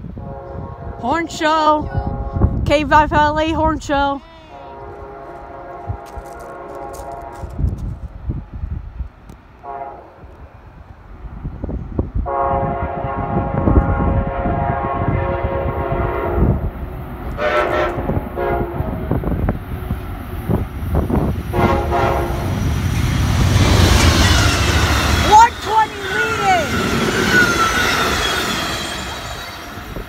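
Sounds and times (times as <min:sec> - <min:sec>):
train horn blasts: 0:00.0 - 0:02.7, 0:04.4 - 0:07.8, 0:09.6 - 0:10.3, 0:12.2 - 0:16.7, 0:17.3 - 0:19.4, 0:21.1 - 0:22.8
train rumble: 0:04.5 - 0:30.0
wheel and rail noise: 0:16.4 - 0:30.0.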